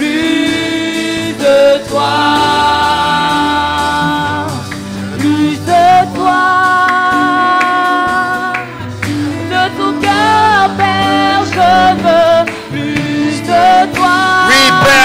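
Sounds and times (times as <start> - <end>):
instrumental accompaniment: 0.0 - 15.0
person singing worship song: 0.0 - 15.0.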